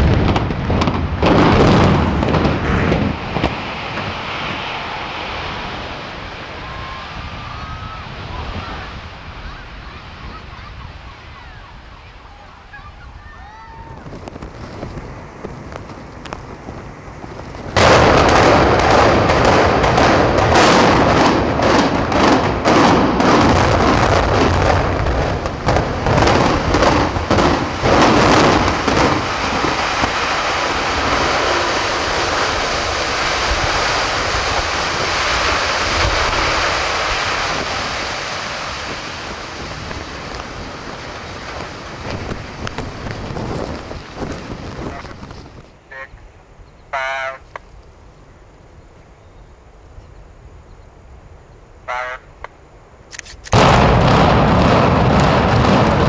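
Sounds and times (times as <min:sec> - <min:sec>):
rapid sharp detonations: 0:00.0 - 0:06.4, 0:17.7 - 0:45.2, 0:53.5 - 0:56.0
rumble of building collapsing: 0:00.0 - 0:09.2, 0:13.8 - 0:45.7, 0:53.6 - 0:56.0
explosive blast: 0:00.0 - 0:09.4, 0:16.4 - 0:45.3, 0:53.5 - 0:56.0.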